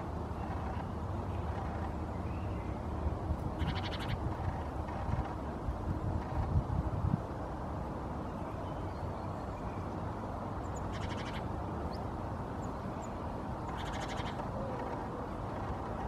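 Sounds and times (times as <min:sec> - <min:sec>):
low outdoor rumble: 0:00.0 - 0:16.0
bird trilling: 0:03.6 - 0:05.4, 0:10.8 - 0:11.5, 0:13.7 - 0:16.0.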